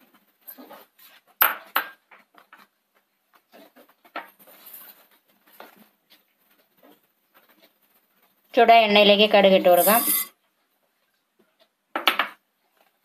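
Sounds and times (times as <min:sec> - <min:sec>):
rustling: 0:02.4 - 0:08.5.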